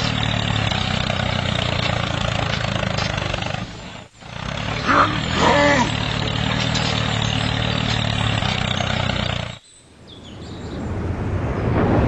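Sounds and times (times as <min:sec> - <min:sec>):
tractor diesel engine running: 0:00.0 - 0:09.6.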